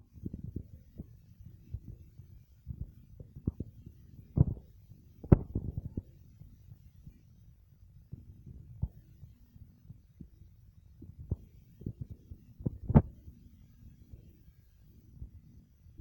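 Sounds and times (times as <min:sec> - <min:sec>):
soft bumps and rubbing: 0:00.2 - 0:06.1, 0:11.0 - 0:13.3.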